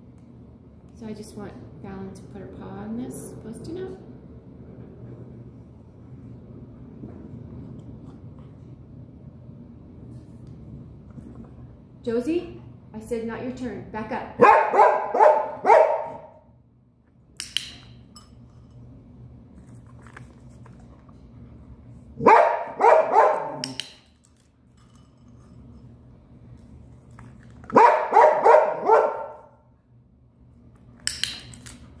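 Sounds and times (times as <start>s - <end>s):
dog barking: 14.4s - 16.4s, 22.2s - 23.7s, 27.7s - 29.6s.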